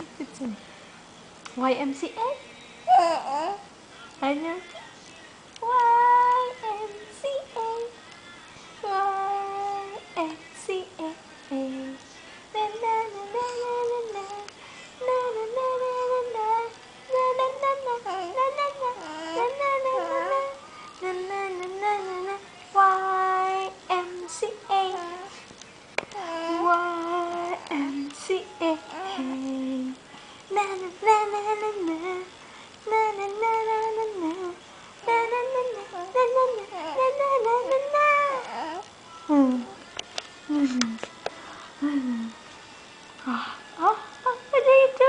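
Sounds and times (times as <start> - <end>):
woman singing wordless tune: 1.5 - 25.5, 26.1 - 41.2, 43.2 - 45.0
baby cooing: 2.9 - 3.7, 17.6 - 20.6, 26.1 - 27.9, 28.7 - 29.4, 35.1 - 38.9.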